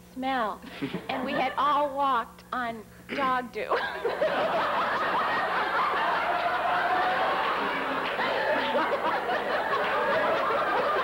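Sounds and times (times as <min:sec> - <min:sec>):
group of people laughing: 0:03.7 - 0:11.0.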